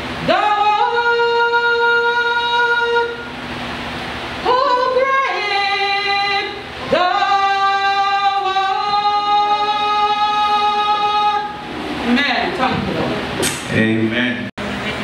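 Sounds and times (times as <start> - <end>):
woman singing long notes: 0.2 - 3.4, 4.4 - 11.6.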